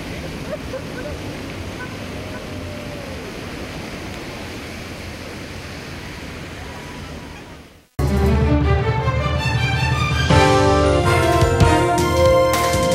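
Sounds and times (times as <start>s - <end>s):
tyres on wet road: 0.0s - 7.9s.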